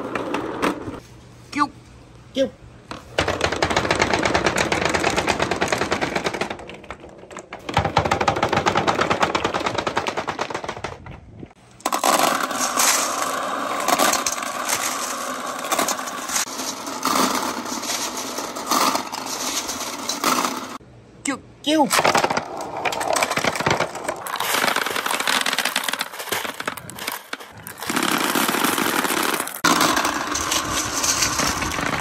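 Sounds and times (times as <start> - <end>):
balls clattering down wooden board: 2.9 - 20.8, 21.9 - 32.0
marbles rattling in plastic bucket: 11.8 - 20.8, 22.0 - 32.0.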